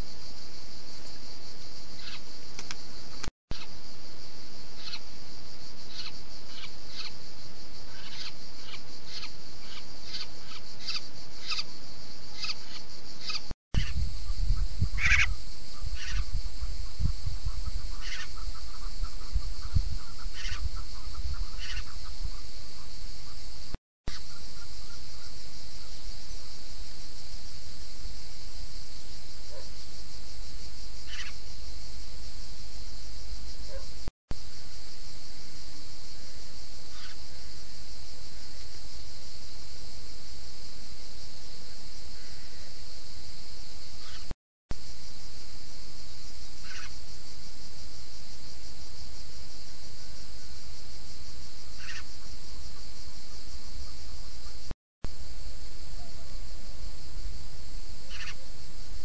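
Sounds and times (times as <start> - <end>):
high-pitched insect chorus: 0.0 - 59.0
short bird calls: 15.0 - 16.3, 20.0 - 22.0, 46.6 - 46.9, 51.8 - 52.1, 58.1 - 58.4.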